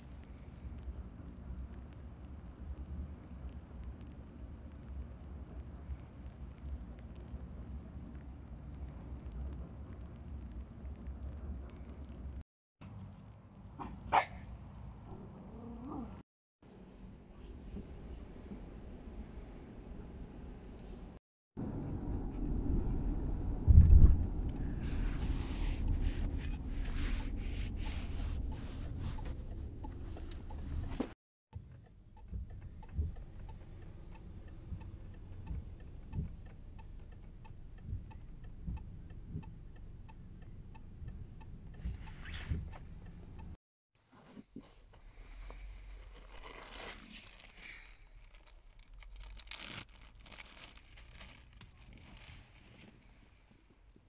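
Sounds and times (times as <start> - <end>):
low steady hum: 14.6 - 43.6
rustling and scratching on car seat: 24.8 - 31.2, 41.8 - 42.9, 44.0 - 53.4.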